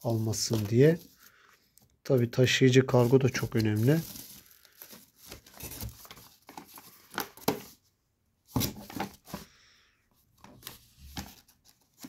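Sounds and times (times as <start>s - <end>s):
cardboard being handled: 0.0s - 1.3s, 2.8s - 7.8s
plastic packaging rustling: 0.0s - 1.5s, 2.1s - 7.7s.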